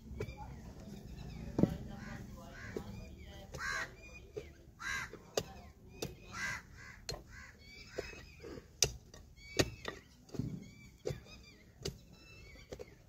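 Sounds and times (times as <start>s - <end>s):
small birds chirping: 0.0s - 13.0s
crows cawing: 1.9s - 4.0s, 4.8s - 5.3s, 6.2s - 8.1s
digging tool striking stony soil: 2.6s - 6.4s, 7.9s - 13.0s.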